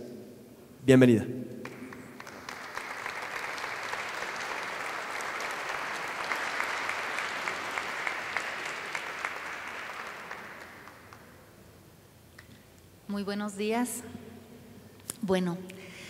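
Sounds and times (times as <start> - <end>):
audience applauding: 1.6 - 11.5.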